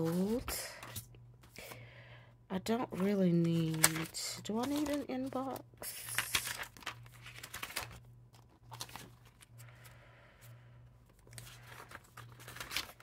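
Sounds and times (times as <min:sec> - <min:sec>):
paper pages rustling: 0:00.0 - 0:01.1, 0:02.8 - 0:10.0, 0:11.0 - 0:13.0.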